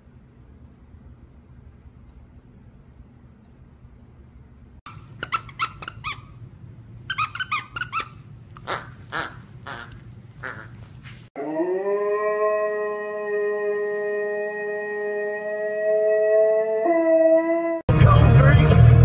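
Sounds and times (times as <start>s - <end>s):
squeaky toy squeaking: 4.9s - 6.4s, 7.1s - 10.7s
dog howling: 11.4s - 17.8s.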